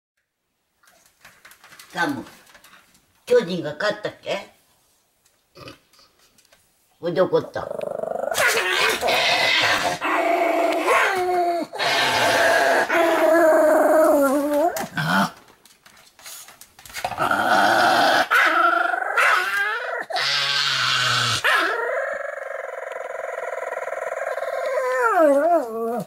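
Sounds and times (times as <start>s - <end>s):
dog growling: 7.5s - 15.4s, 17.0s - 26.0s
dog whining and howling: 8.3s - 15.1s, 17.5s - 26.0s.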